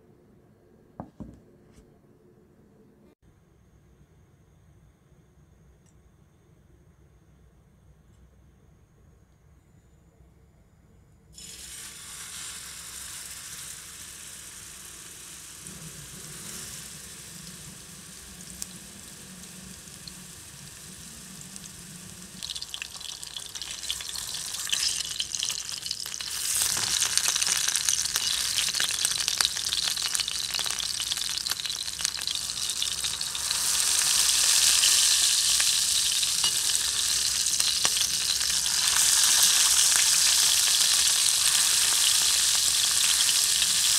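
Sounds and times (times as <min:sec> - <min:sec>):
burger patty sizzling in oil: 0:11.4 - 0:43.9.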